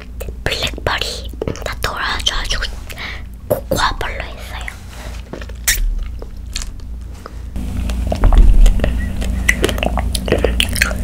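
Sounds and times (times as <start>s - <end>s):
person chewing with wet clicks: 4.6s - 7.1s, 7.7s - 11.0s
dull low bump: 7.6s - 9.9s.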